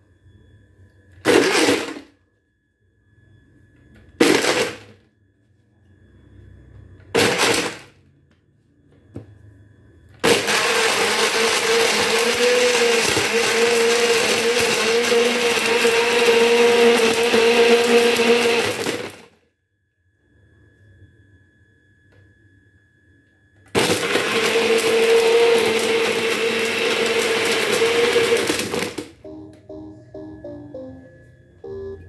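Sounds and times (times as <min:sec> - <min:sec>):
blender running: 0:01.3 - 0:02.0, 0:04.2 - 0:04.7, 0:10.2 - 0:19.3, 0:23.8 - 0:29.0.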